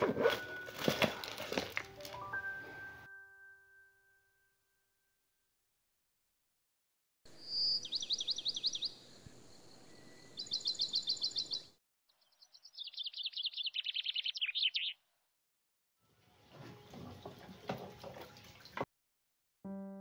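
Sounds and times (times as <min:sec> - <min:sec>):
songbird chirping: 0:07.3 - 0:15.2.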